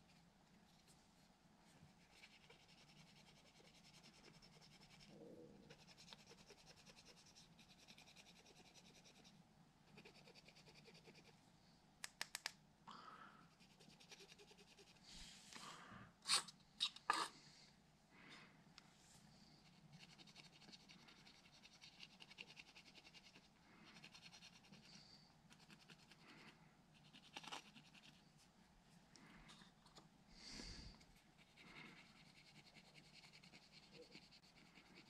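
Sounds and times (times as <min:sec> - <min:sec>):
faint scratching strokes: 0:00.0 - 0:11.4, 0:13.5 - 0:15.6, 0:18.8 - 0:35.0
sharp clicks: 0:12.0 - 0:12.6
small clicks: 0:12.0 - 0:12.6.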